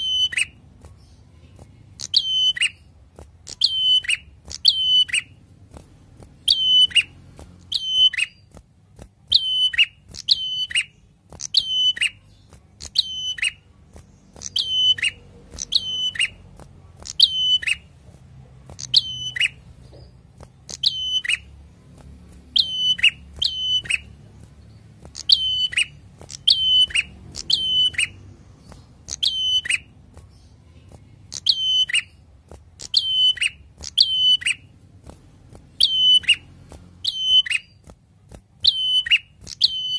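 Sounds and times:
bird calling sharp notes: 0:00.0 - 0:00.6, 0:02.0 - 0:02.8, 0:03.5 - 0:05.4, 0:06.4 - 0:08.5, 0:09.3 - 0:13.7, 0:14.3 - 0:16.4, 0:17.0 - 0:17.9, 0:20.7 - 0:21.5, 0:22.5 - 0:24.2, 0:25.1 - 0:28.3, 0:29.0 - 0:29.9, 0:32.8 - 0:34.7, 0:35.8 - 0:37.8, 0:38.6 - 0:39.9.

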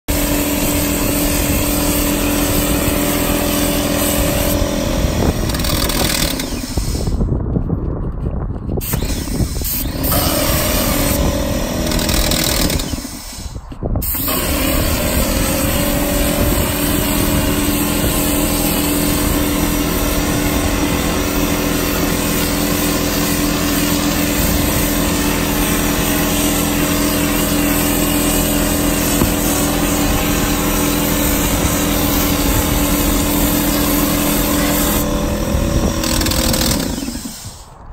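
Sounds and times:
engine-driven pump running: 0:00.0 - 0:07.3, 0:08.8 - 0:37.8
spray gun hissing: 0:00.1 - 0:05.4, 0:09.6 - 0:11.5, 0:12.6 - 0:37.8.

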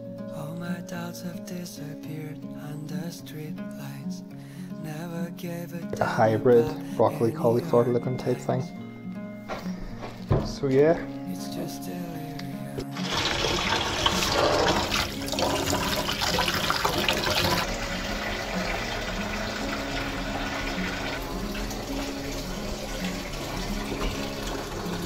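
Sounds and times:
tap water splashing: 0:12.8 - 0:25.0.

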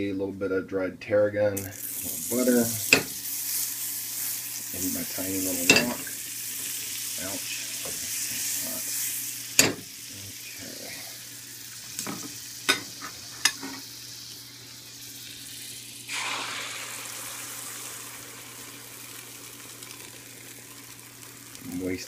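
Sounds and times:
butter sizzling in a wok: 0:01.6 - 0:22.0
eggs poured into hot butter: 0:14.7 - 0:22.0.

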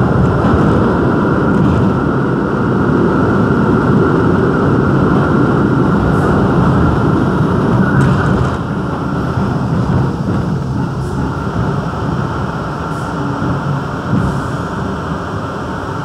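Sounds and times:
subway train wheels rumbling on rails: 0:00.0 - 0:16.0.

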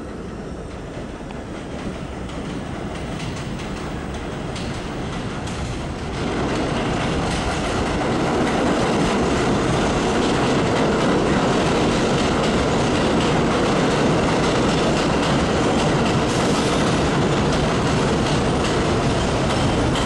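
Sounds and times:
subway train wheels on rails: 0:00.0 - 0:20.0.

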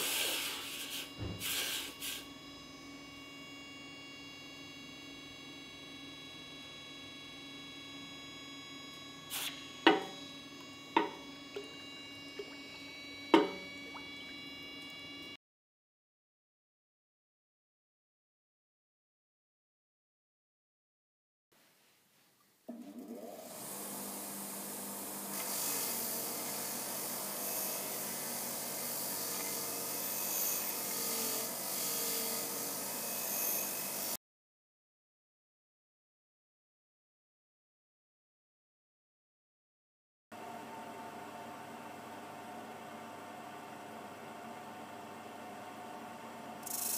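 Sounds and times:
disc sander motor: 0:00.0 - 0:15.4, 0:23.3 - 0:34.2, 0:46.6 - 0:46.9.

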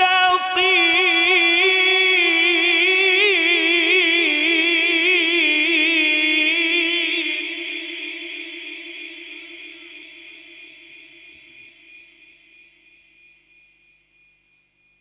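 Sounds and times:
man reciting melodically: 0:00.0 - 0:10.6.

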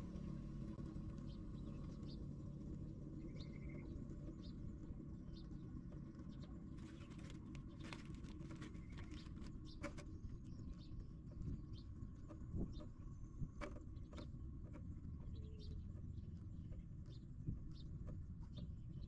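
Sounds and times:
faint clicks and crackles: 0:06.7 - 0:10.0.

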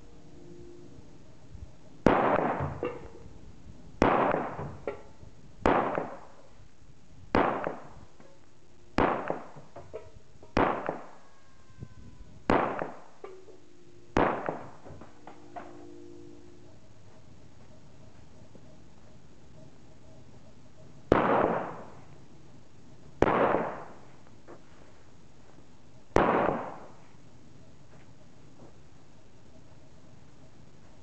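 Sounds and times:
pistol shots with echo: 0:02.0 - 0:03.1, 0:04.0 - 0:04.8, 0:05.6 - 0:06.4, 0:07.3 - 0:08.0, 0:09.0 - 0:09.7, 0:10.6 - 0:11.2, 0:12.5 - 0:13.2, 0:14.2 - 0:14.9, 0:21.1 - 0:22.0, 0:23.2 - 0:24.0, 0:26.1 - 0:27.0.

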